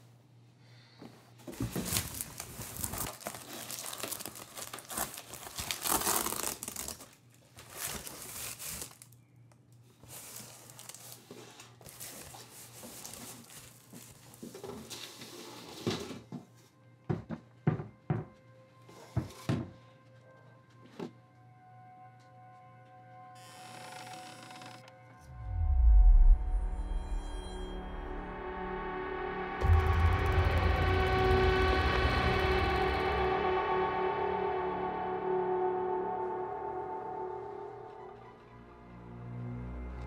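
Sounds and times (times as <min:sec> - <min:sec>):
paper crinkling: 0:01.6 - 0:09.2, 0:10.0 - 0:15.0
tape tearing: 0:01.8 - 0:09.1.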